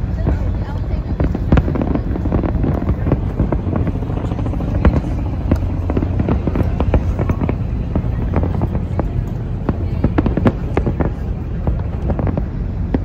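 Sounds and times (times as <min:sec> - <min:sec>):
fireworks bursting: 0:00.0 - 0:13.0
low rumble: 0:00.0 - 0:13.0.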